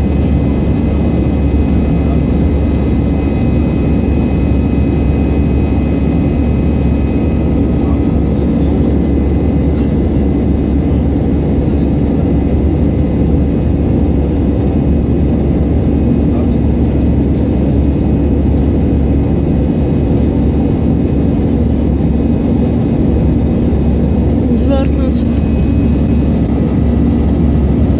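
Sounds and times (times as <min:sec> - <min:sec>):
jet engines droning: 0:00.0 - 0:27.9
low hum: 0:20.5 - 0:27.9.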